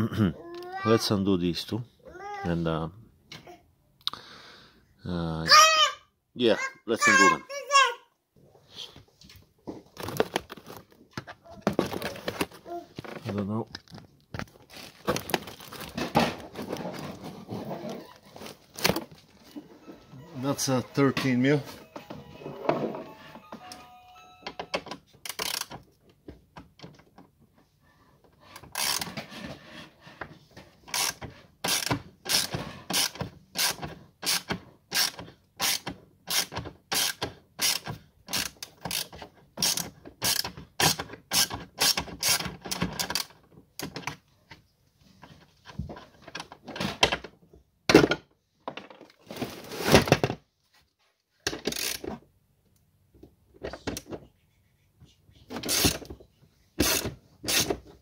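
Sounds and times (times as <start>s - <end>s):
ratchet wrench clicking: 25.3s - 25.7s, 51.7s - 52.0s.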